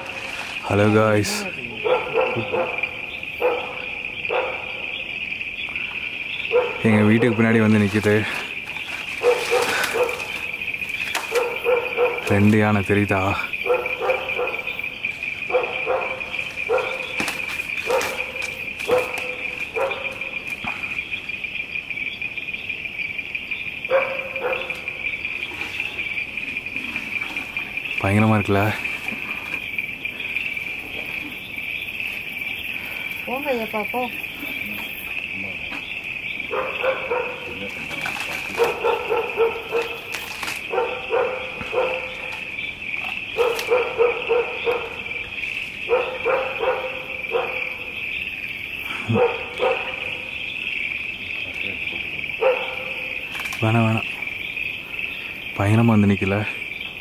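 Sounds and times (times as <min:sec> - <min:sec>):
night insects chorus: 0:00.0 - 0:57.0
dog barking: 0:01.7 - 0:05.1, 0:06.5 - 0:07.4, 0:09.2 - 0:12.9, 0:13.6 - 0:20.4, 0:23.9 - 0:25.0, 0:36.5 - 0:37.9, 0:38.5 - 0:42.5, 0:43.3 - 0:48.0, 0:49.0 - 0:50.4, 0:52.4 - 0:53.2.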